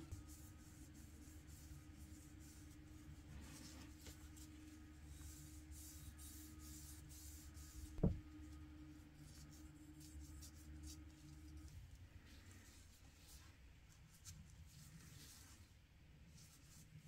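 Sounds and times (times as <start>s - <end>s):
faint steady hum: 0.0s - 17.0s
dull knock: 8.0s - 8.2s.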